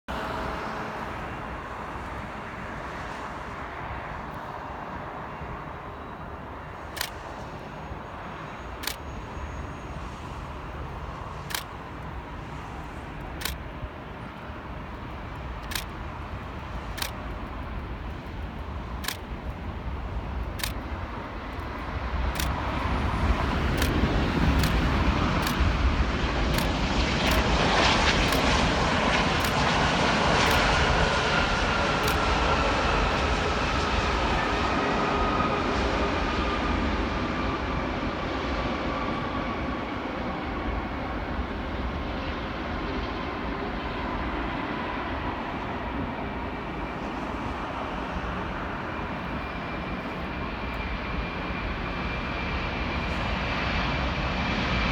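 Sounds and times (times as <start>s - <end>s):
faint whine: 0.1s - 54.9s
jet engine roar: 0.1s - 54.9s
traffic hum: 0.1s - 54.9s
sharp clicks: 6.9s - 7.6s, 8.8s - 9.1s, 11.4s - 12.1s, 13.2s - 13.7s, 15.6s - 16.0s, 16.9s - 19.6s, 20.4s - 20.9s, 22.3s - 22.7s, 23.7s - 25.7s, 26.5s - 27.5s, 28.2s - 28.5s, 29.4s - 29.6s, 32.0s - 32.2s.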